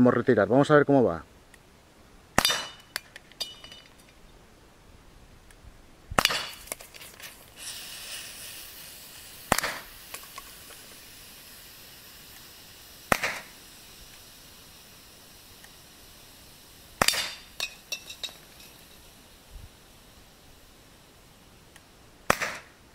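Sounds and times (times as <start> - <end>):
air pistol pops: 6.2 - 8.6, 9.3 - 11.0, 13.1 - 14.2, 17.0 - 17.8, 21.8 - 22.7.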